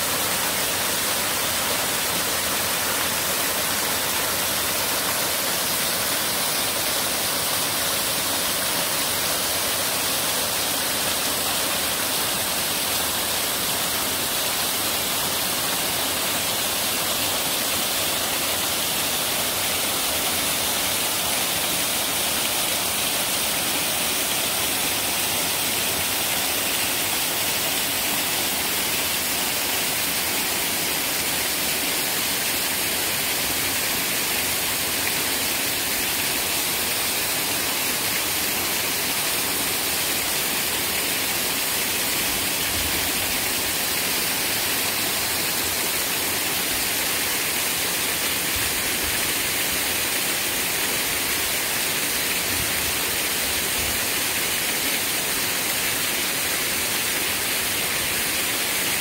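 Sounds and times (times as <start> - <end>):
waterfall rushing over boulders: 0.0 - 59.0.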